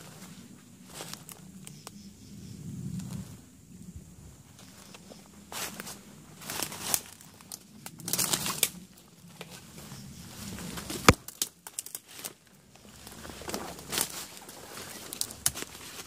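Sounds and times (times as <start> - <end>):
footsteps crunching dry leaves: 4.6 - 16.0
twig snapping: 6.6 - 8.8, 10.9 - 12.3.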